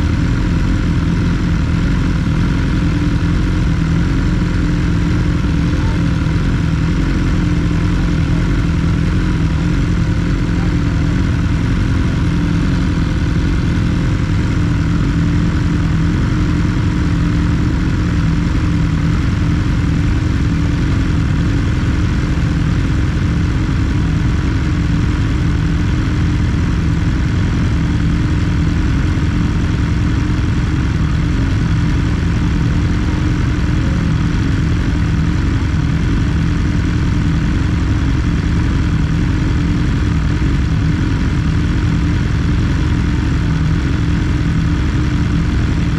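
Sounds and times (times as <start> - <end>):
motorcycle engine running steadily: 0.0 - 45.9.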